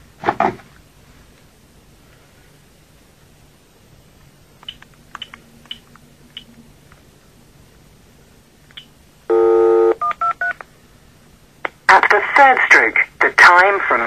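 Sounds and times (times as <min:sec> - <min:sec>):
telephone dial tone: 0:09.3 - 0:10.5.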